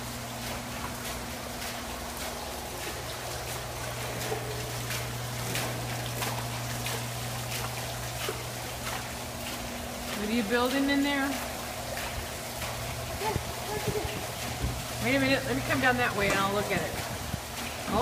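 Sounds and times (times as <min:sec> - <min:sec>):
steady low hum: 0:00.0 - 0:18.0
water trickling and splashing: 0:00.0 - 0:18.0.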